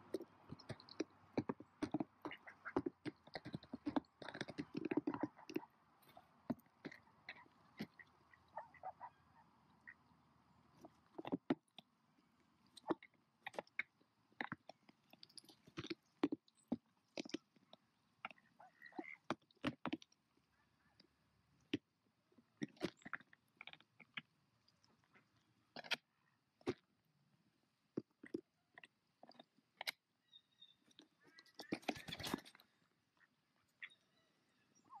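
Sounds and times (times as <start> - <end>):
duck wings flapping and scrabbling: 31.4 - 32.5.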